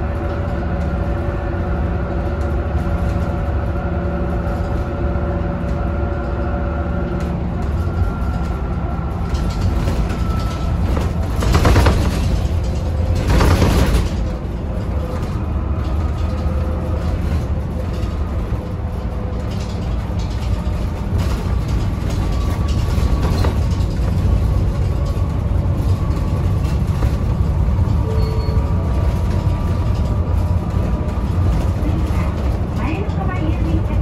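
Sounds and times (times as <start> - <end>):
bus engine drone: 0.0 - 34.0.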